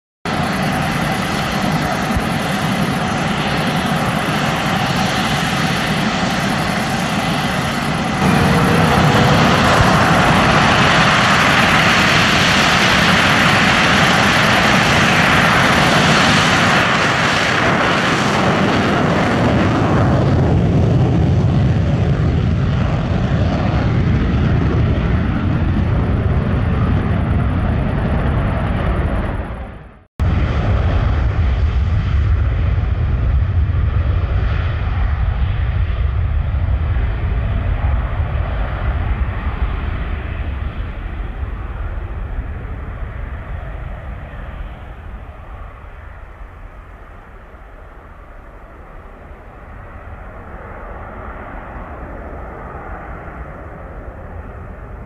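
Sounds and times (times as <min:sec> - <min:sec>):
jet engine roaring with whine: 0:00.3 - 0:55.0.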